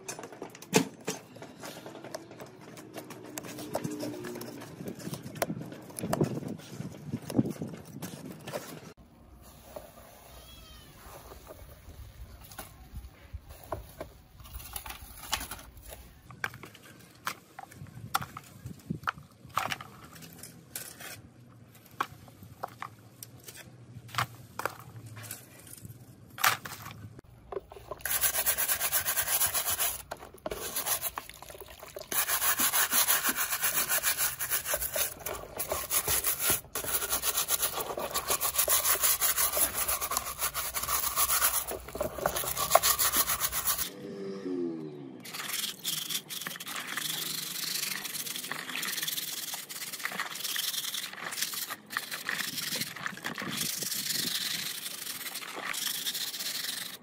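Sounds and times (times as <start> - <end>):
abrasive rubbing strokes: 32.1 - 43.9.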